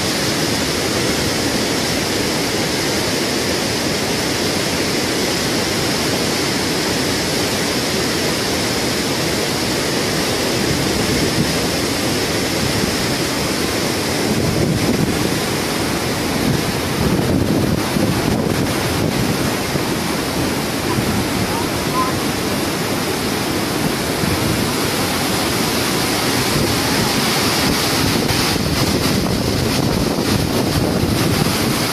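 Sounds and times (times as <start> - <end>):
river rushing: 0.0 - 31.9
wind buffeting microphone: 10.6 - 31.9.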